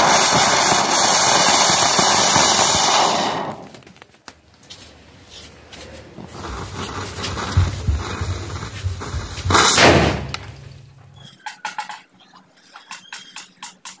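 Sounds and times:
firecrackers hissing and crackling: 0:00.0 - 0:11.3
loud whooshing burst: 0:06.3 - 0:11.0.

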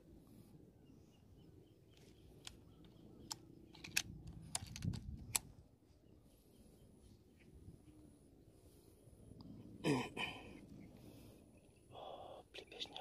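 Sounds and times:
rifle handling clicks and knocks: 0:01.9 - 0:05.6.

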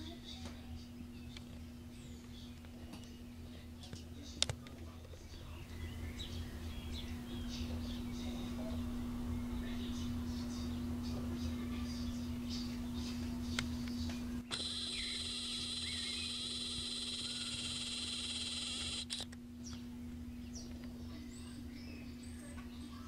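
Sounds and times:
faint small-bird chirps: 0:09.4 - 0:23.0
camcorder zoom motor whining: 0:14.5 - 0:19.3.

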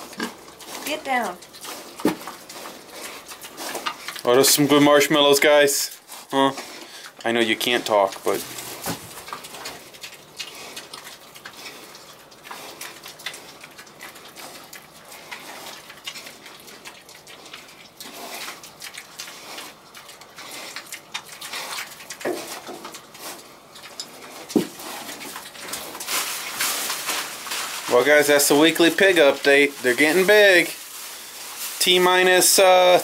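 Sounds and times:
pigs chewing and snuffling: 0:00.0 - 0:33.0
rustling in straw: 0:24.2 - 0:33.0.

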